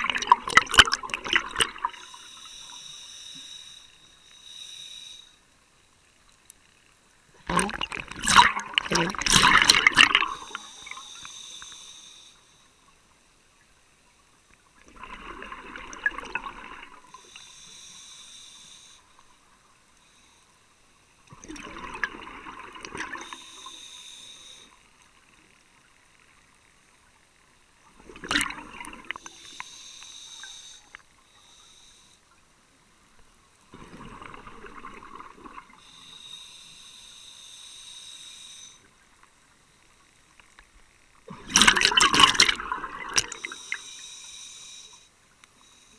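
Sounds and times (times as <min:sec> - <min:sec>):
exhaled bubbles gurgling: 0:00.0 - 0:02.2, 0:07.4 - 0:11.1, 0:14.8 - 0:17.3, 0:21.3 - 0:23.8, 0:27.9 - 0:29.6, 0:33.7 - 0:35.9, 0:41.2 - 0:43.8
diver breathing through regulator: 0:01.9 - 0:05.4, 0:09.3 - 0:12.7, 0:17.0 - 0:19.2, 0:23.1 - 0:24.8, 0:28.9 - 0:32.3, 0:35.6 - 0:38.8, 0:42.3 - 0:45.9.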